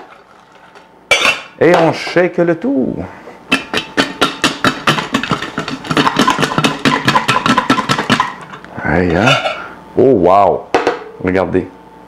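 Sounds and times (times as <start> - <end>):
pot and lid clattering: 1.1 - 1.5, 3.5 - 9.7.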